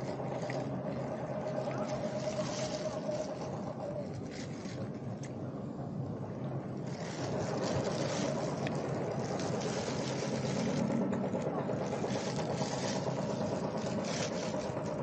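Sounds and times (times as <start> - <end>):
wind buffeting microphone: 0.0 - 15.0
plastic bag crinkling: 6.8 - 15.0.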